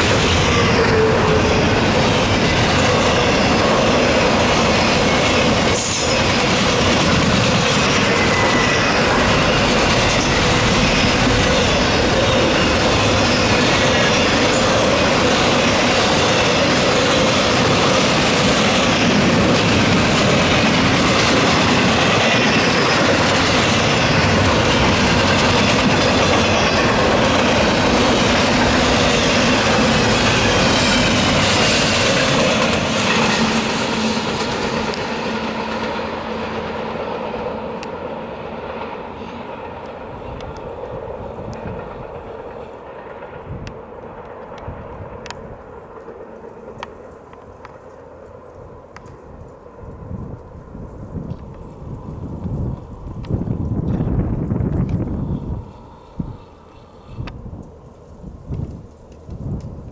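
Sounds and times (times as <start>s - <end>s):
high wheel squeals: 0.0s - 17.3s
train wheels rumbling on rail: 0.0s - 59.9s.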